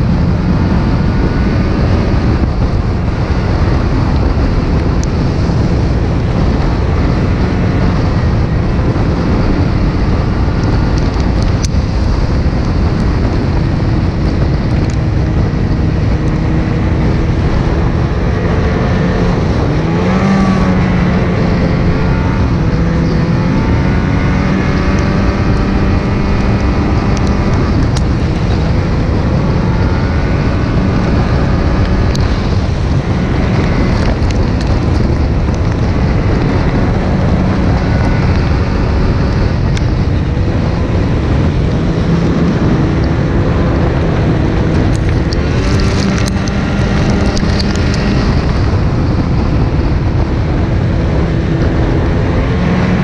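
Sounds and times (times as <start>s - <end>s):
snowmobile engine running: 0.0s - 53.0s
wind on microphone: 0.0s - 53.0s
sharp ticks: 44.8s - 48.7s.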